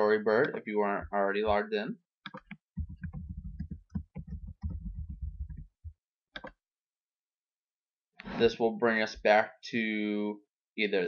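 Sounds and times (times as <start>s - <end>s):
typing on computer keyboard: 2.3s - 5.8s, 6.4s - 6.6s
click: 6.4s - 6.6s.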